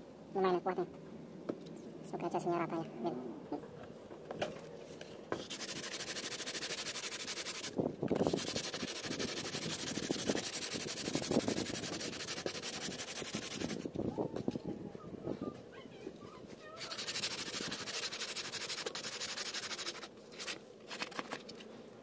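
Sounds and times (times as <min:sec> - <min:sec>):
sandpaper scratching: 0:05.4 - 0:13.9, 0:16.6 - 0:21.7.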